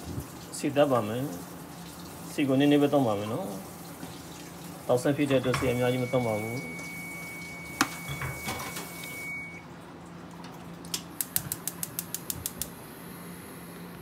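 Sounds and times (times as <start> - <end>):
stove spark igniter ticking: 10.9 - 12.8
gas burner hissing: 11.2 - 14.0.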